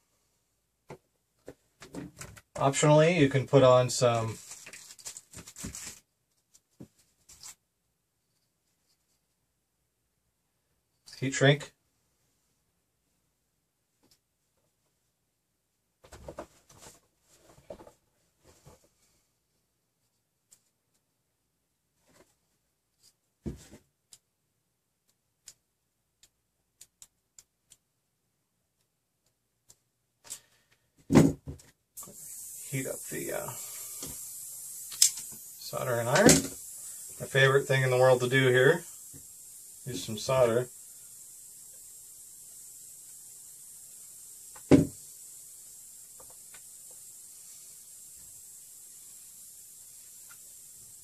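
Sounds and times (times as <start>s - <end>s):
faint clicks of small parts: 25.0s - 27.9s, 28.7s - 30.9s, 34.0s - 35.5s
knock on workbench: 44.7s - 44.9s.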